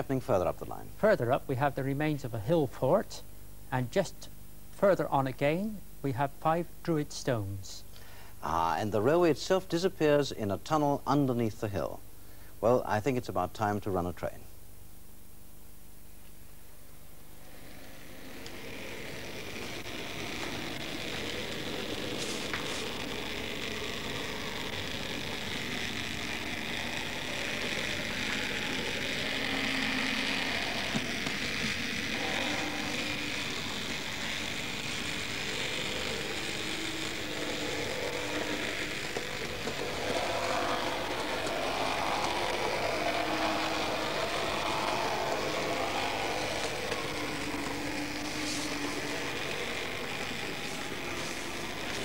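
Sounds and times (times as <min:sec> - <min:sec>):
model train motor whirring: 0:17.3 - 0:52.0.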